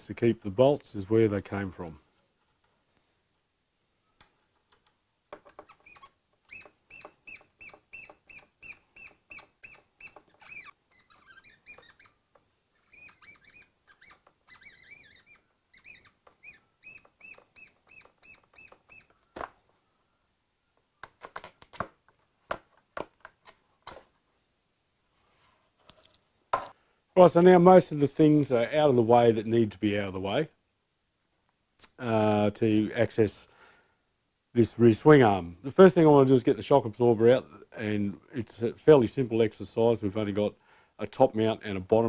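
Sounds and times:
bird chirping: 5.7s - 21.2s
clicks and knocks of parts handled: 21.0s - 24.2s.

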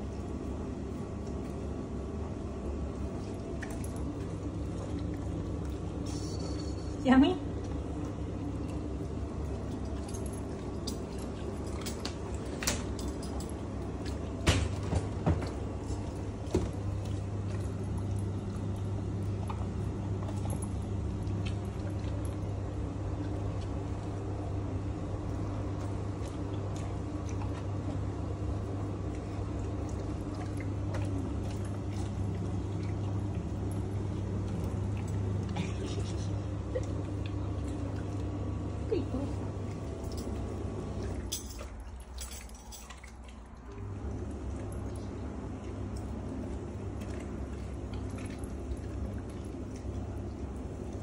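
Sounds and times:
low hum: 0.0s - 51.0s
dog eating from glass bowl: 5.7s - 7.0s, 9.4s - 14.2s, 40.0s - 43.5s.

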